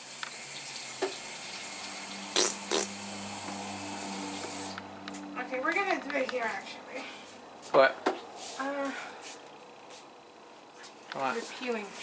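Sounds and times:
tap running water: 0:00.0 - 0:03.7.

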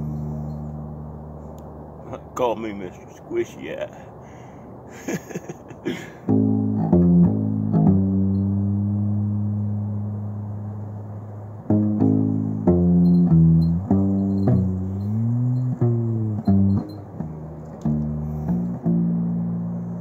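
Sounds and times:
plucked upright bass: 0:00.0 - 0:02.2, 0:06.2 - 0:20.0.

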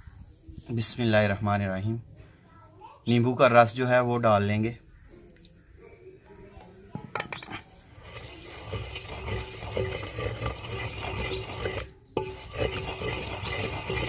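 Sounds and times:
pestle grinding in a mortar: 0:07.4 - 0:14.0.

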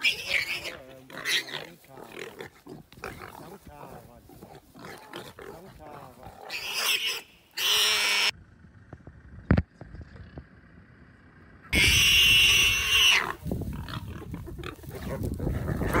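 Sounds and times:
warthog squealing: 0:00.0 - 0:08.3, 0:11.8 - 0:16.0.

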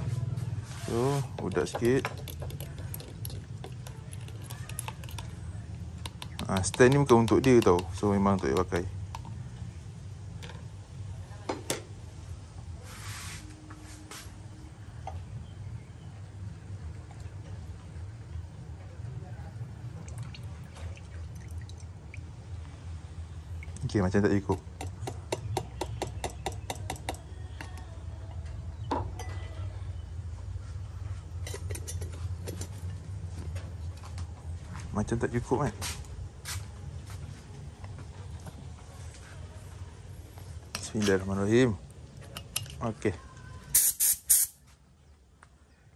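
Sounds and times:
plastic cups clicking and tapping: 0:01.3 - 0:09.4
short spray hiss: 0:43.7 - 0:44.6.

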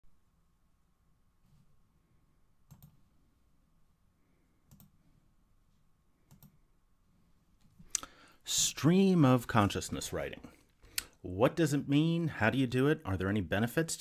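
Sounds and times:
computer mouse clicks: 0:02.7 - 0:03.0, 0:04.7 - 0:05.0, 0:06.3 - 0:06.6.

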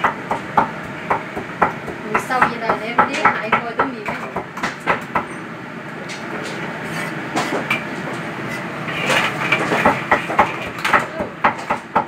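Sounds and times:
range hood fans running: 0:00.0 - 0:12.0
metal spatula scraping a wok: 0:06.8 - 0:07.6, 0:08.4 - 0:09.8.

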